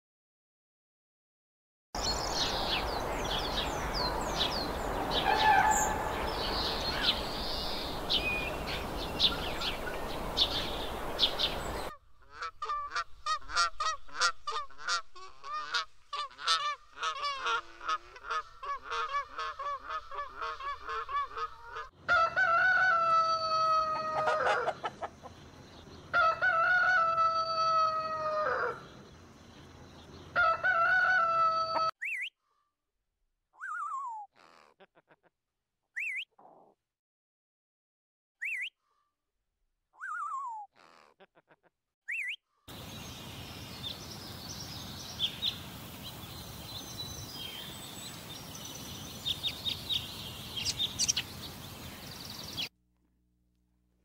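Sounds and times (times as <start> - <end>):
swans calling: 2.0 - 22.0
rooster crowing: 5.1 - 7.3, 22.1 - 25.0, 26.2 - 28.8, 30.4 - 31.9
high bird chirps: 32.0 - 32.3, 36.0 - 36.3, 38.4 - 38.8, 40.0 - 40.7, 42.1 - 52.7.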